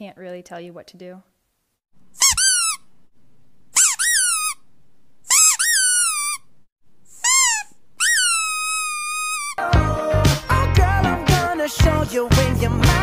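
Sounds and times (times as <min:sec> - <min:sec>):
high-pitched squeaky whines: 0:02.2 - 0:02.8, 0:03.8 - 0:04.6, 0:05.3 - 0:06.5, 0:07.2 - 0:09.6.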